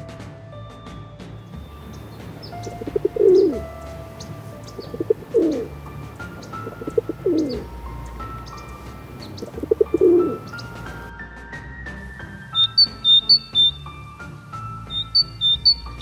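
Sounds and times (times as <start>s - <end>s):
faint high bird chirps: 1.6s - 11.1s, 12.6s - 13.8s, 14.8s - 16.0s
pigeons cooing: 1.8s - 11.1s.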